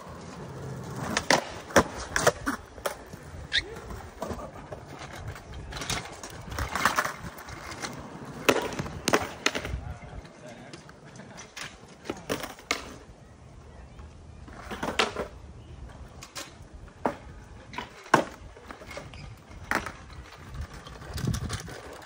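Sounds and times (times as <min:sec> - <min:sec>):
skateboard clacks on concrete: 0:00.0 - 0:13.1, 0:14.4 - 0:15.4, 0:16.0 - 0:22.0.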